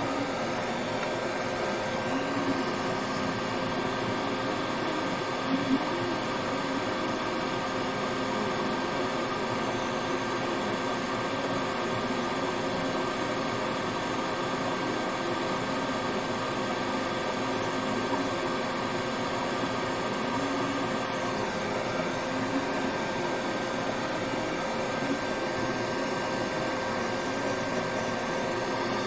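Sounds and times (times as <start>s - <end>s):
fan whirring hum: 0.0s - 29.0s
faint steady tones: 17.2s - 29.0s.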